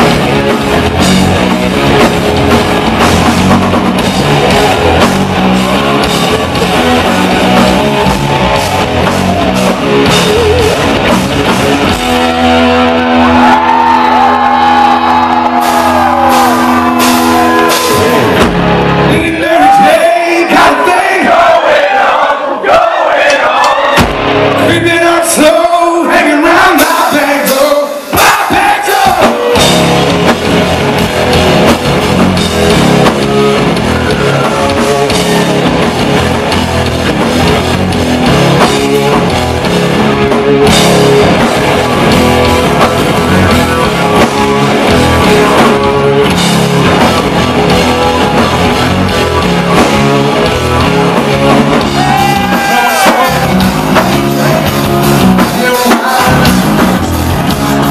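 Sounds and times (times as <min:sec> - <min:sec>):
rock band playing: 0:00.0 - 0:21.8, 0:23.5 - 0:57.9
crowd shouting and cheering: 0:00.0 - 0:57.9
person singing: 0:19.1 - 0:21.2, 0:51.8 - 0:57.0.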